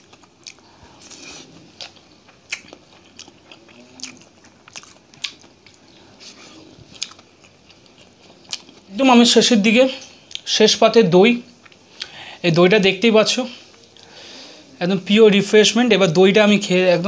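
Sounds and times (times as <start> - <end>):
person chewing: 0.0 - 8.9, 9.8 - 10.5, 11.5 - 12.2.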